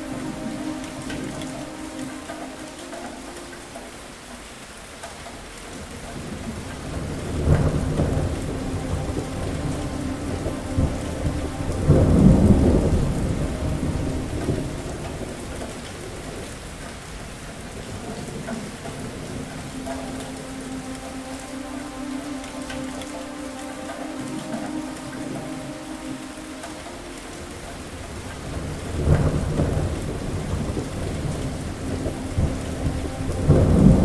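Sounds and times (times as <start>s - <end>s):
steady rain: 0.0s - 34.0s
thunder rolling: 6.3s - 16.6s, 28.1s - 34.0s.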